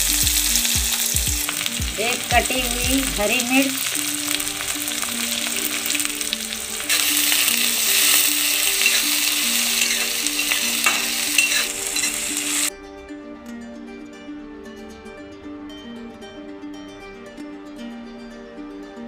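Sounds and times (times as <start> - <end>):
onions sizzling in hot oil: 0.0 - 12.7
soft plucked music: 0.0 - 19.0
ladle scraping pan: 6.9 - 12.7.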